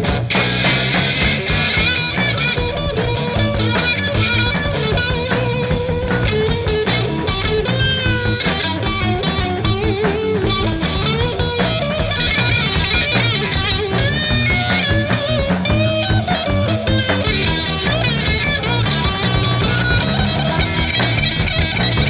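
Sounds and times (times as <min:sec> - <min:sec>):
drums: 0:00.0 - 0:22.0
electric guitar bending notes: 0:00.0 - 0:22.0.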